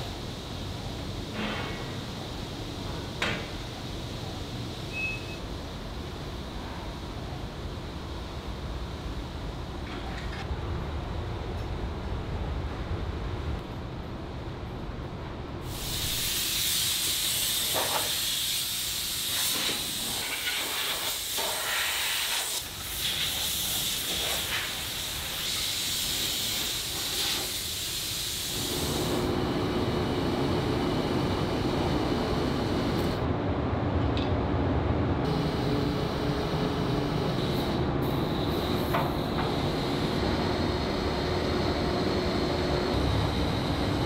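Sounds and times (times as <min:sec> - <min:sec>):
factory machinery hum: 0:00.0 - 0:44.0
compressed air hissing: 0:15.6 - 0:29.4, 0:37.2 - 0:44.0.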